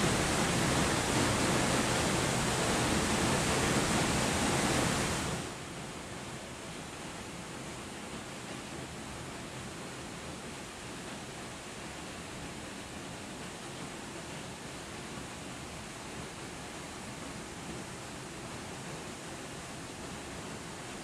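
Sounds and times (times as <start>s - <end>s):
waterfall rushing: 0.0s - 5.6s.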